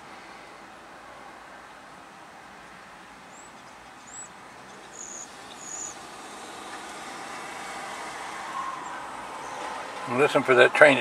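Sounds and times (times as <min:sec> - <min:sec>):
outdoor background noise: 0:00.0 - 0:11.0.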